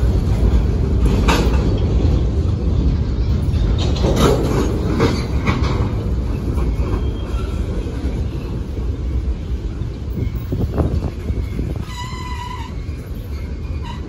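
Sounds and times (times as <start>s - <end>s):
freight cars rumbling on rails: 0.0s - 14.0s
sharp clacks and squeals: 3.2s - 8.8s.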